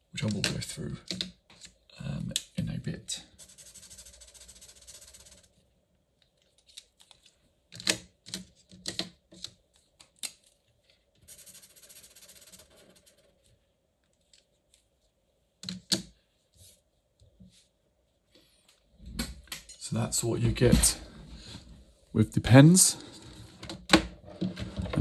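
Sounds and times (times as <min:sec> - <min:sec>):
felt pen scratching on paper: 0:03.4 - 0:05.5, 0:11.3 - 0:13.3.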